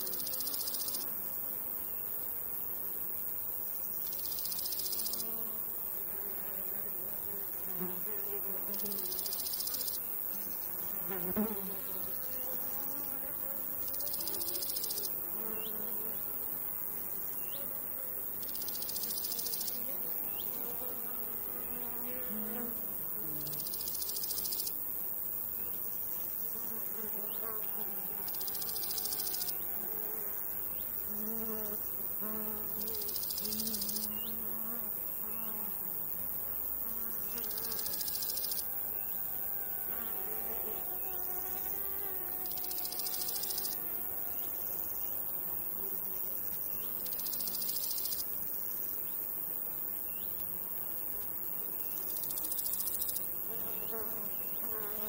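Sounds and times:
flying insects buzzing: 0.0 - 55.0
grasshopper rasping song: 25.6 - 48.4.

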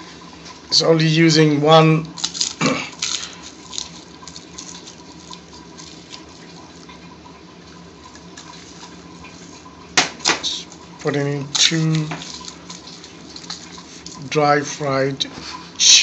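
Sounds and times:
faint steady hum: 0.0 - 16.0
dry chili crackling and rustling: 2.0 - 7.0, 7.8 - 14.4.

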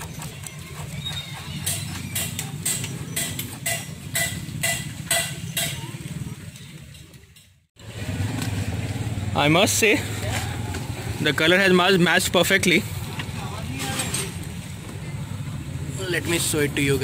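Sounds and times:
sharp metal taps: 1.6 - 5.9.

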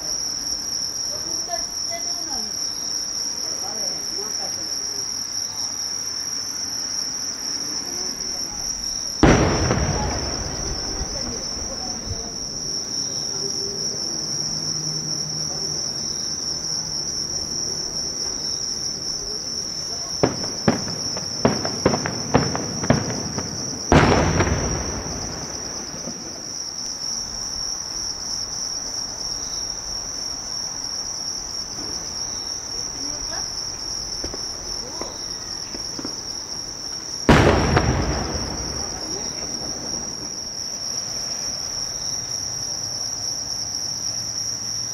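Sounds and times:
insects chirping: 0.0 - 44.9
fireworks cracking: 8.0 - 13.9, 17.5 - 26.8, 31.7 - 41.8
fireworks booming with echo: 8.0 - 14.8, 15.4 - 28.2, 31.6 - 41.9.

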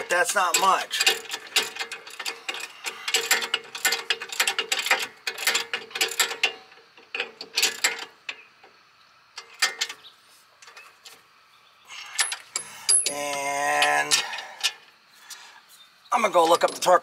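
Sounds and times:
ratchet wrench clicking: 0.5 - 8.1.

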